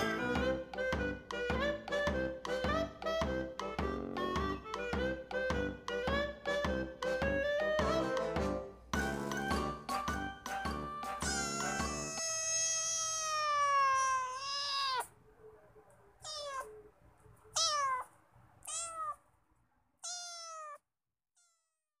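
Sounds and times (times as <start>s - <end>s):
cat meowing: 11.4s - 15.2s, 16.2s - 16.9s, 17.5s - 19.2s, 20.0s - 20.8s.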